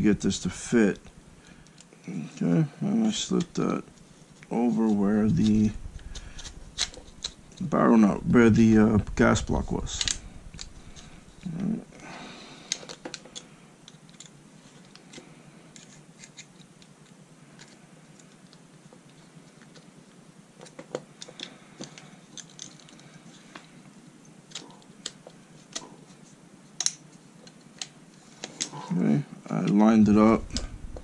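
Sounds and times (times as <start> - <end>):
plastic parts clicking together: 12.6 - 19.9, 20.6 - 23.7, 24.5 - 25.9, 26.8 - 28.8.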